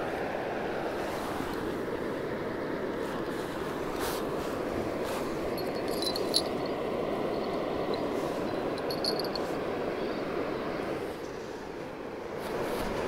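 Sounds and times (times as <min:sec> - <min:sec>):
steady rushing background noise: 0:00.0 - 0:11.2
small metallic tinkles: 0:05.5 - 0:09.6.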